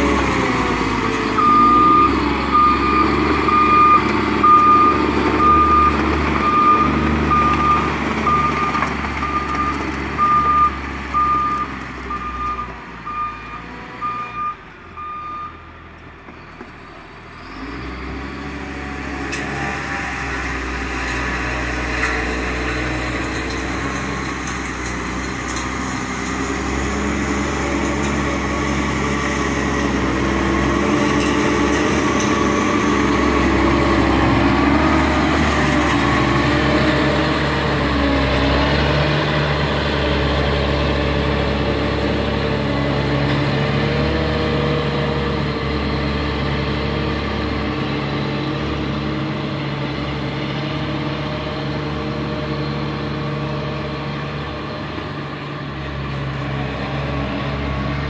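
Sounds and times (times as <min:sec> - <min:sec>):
diesel engine: 0:00.0 - 0:58.0
reversing alarm beeping: 0:01.4 - 0:15.6.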